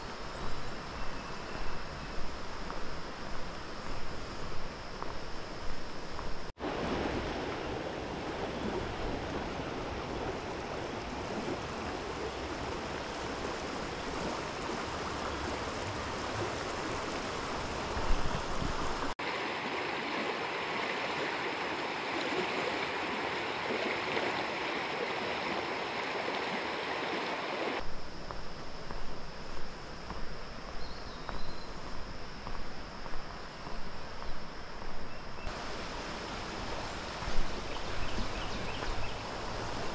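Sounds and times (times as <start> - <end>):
river water rushing over rocks: 6.6 - 27.8, 35.5 - 39.9.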